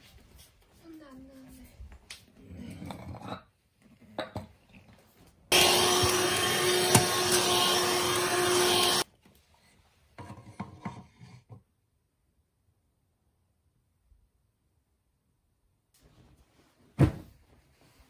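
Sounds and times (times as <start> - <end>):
handheld vacuum cleaner running: 5.5 - 9.1.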